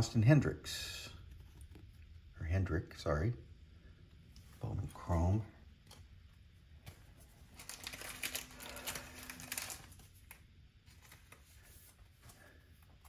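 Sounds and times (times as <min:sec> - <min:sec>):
trading cards rustling and clicking: 0:06.8 - 0:13.0.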